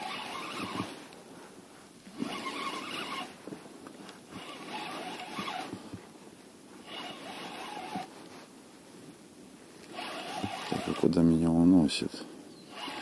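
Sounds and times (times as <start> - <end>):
fishing reel whirring: 0.0 - 1.0, 2.2 - 3.4, 4.4 - 5.7, 6.8 - 8.1, 9.9 - 11.2, 12.7 - 13.0.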